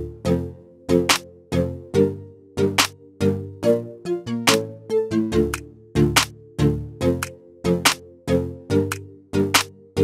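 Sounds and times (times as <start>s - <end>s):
snare-like stroke: 1.1s - 1.3s, 7.2s - 8.0s.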